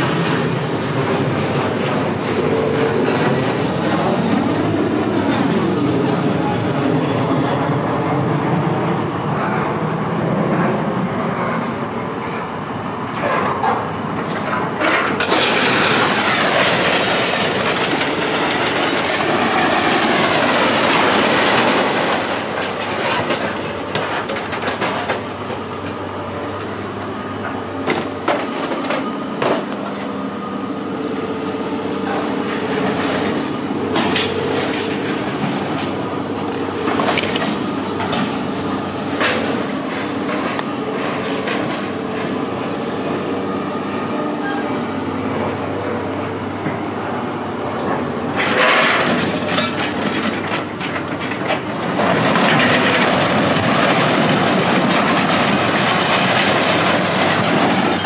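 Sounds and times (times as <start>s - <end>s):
heavy engine running: 0.0s - 58.0s
scrap metal clanking and banging: 13.2s - 25.2s, 47.9s - 58.0s
loud rushing grinding noise: 15.1s - 25.7s.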